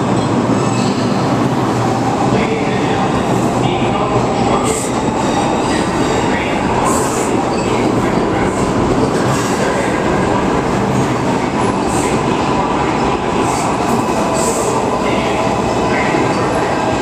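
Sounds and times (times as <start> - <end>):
subway train wheels on rails: 0.0 - 17.0.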